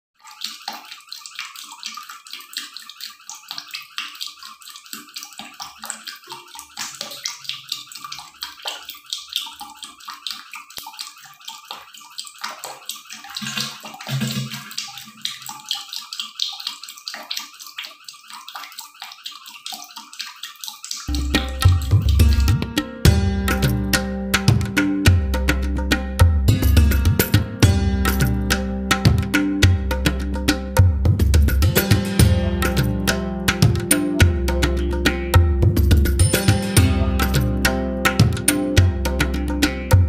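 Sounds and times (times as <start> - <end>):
water running and splashing: 0.2 - 40.0.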